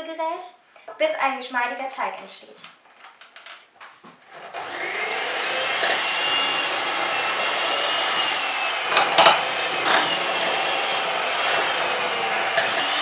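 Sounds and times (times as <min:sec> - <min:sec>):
electric hand mixer running: 0:04.4 - 0:13.0.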